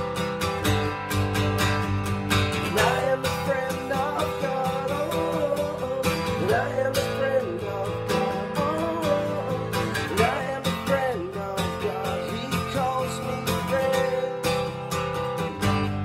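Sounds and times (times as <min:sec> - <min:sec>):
acoustic guitar strumming: 0:00.0 - 0:16.0
man singing: 0:02.5 - 0:15.0.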